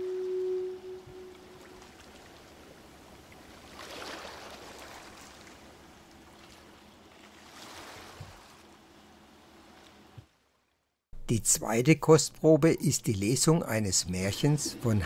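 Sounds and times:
sea waves washing in: 0:00.0 - 0:08.7.

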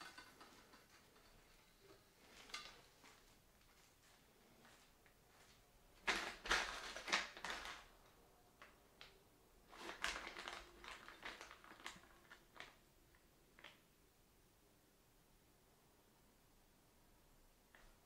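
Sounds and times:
packaging rustling: 0:06.0 - 0:08.0, 0:09.7 - 0:12.8.

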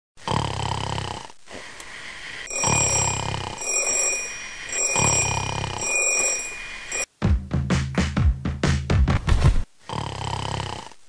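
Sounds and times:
person snoring: 0:00.2 - 0:01.3, 0:09.9 - 0:11.0
digital alarm clock beeping: 0:02.5 - 0:07.1.

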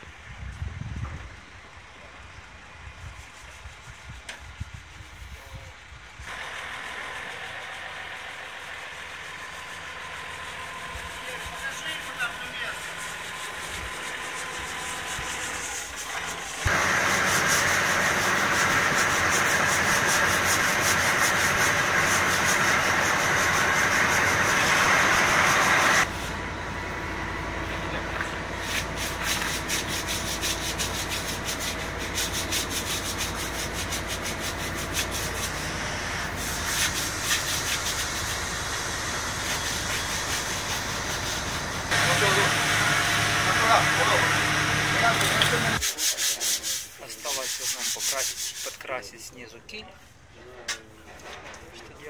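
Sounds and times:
sanding rasp on hull: 0:03.1 - 0:05.4, 0:06.9 - 0:26.2, 0:28.6 - 0:42.5, 0:45.3 - 0:49.0
uneven scraping strokes: 0:06.9 - 0:18.0, 0:28.6 - 0:38.5, 0:39.4 - 0:42.0, 0:45.2 - 0:49.3.

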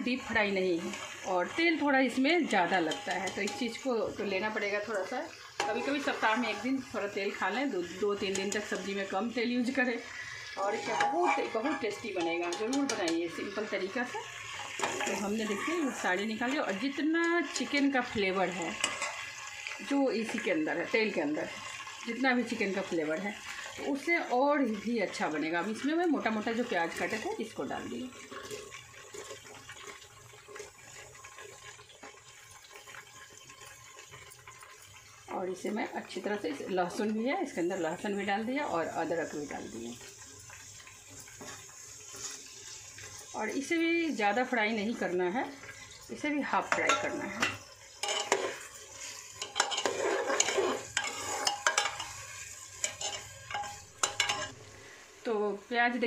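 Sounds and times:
onions sizzling in hot oil: 0:00.0 - 0:56.0
metal spatula scraping a pot: 0:02.5 - 0:03.9, 0:05.5 - 0:06.9, 0:07.8 - 0:21.9, 0:28.1 - 0:32.2, 0:40.2 - 0:43.3, 0:46.6 - 0:54.6.

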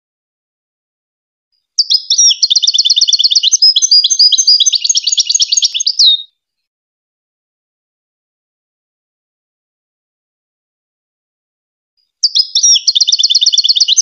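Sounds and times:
goldfinch singing: 0:01.8 - 0:06.3, 0:12.2 - 0:14.0.

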